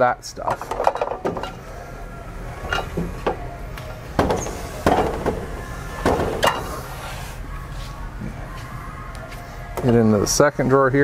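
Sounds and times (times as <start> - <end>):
steady low hum: 0.0 - 10.7
metal cabinet clunks and knocks: 0.5 - 1.6, 4.2 - 6.7.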